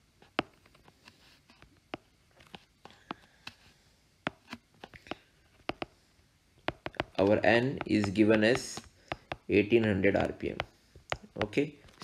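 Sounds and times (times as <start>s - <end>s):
stylus tapping glass screen: 4.3s - 5.9s, 6.6s - 9.6s, 10.2s - 11.6s.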